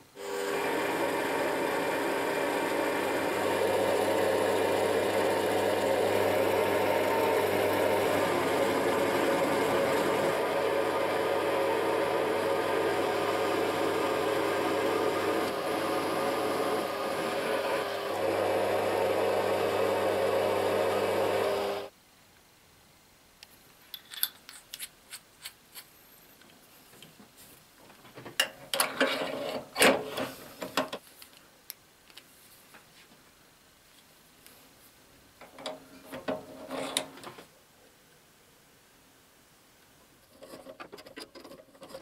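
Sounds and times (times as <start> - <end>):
metal lathe cutting: 0.2 - 21.9.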